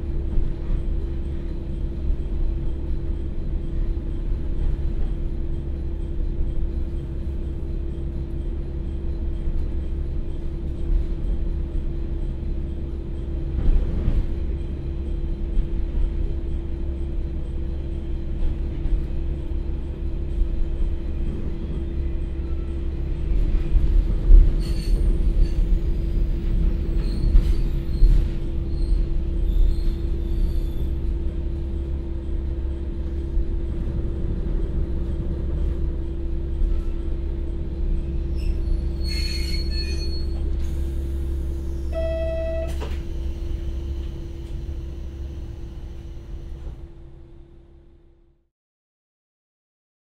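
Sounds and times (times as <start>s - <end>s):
train engine and running rumble: 0.0s - 48.5s
high brake squeal: 24.6s - 25.9s, 26.9s - 31.0s, 38.2s - 46.5s
short pitched tone: 41.9s - 44.0s.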